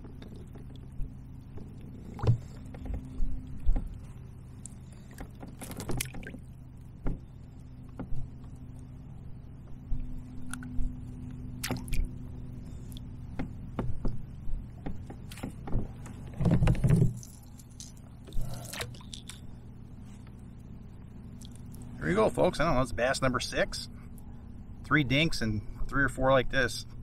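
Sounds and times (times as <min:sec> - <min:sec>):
steady low hum: 0:00.0 - 0:27.0
fishing gear clicks and knocks: 0:04.6 - 0:06.4, 0:14.8 - 0:19.5
rustling and knocking: 0:14.8 - 0:17.4.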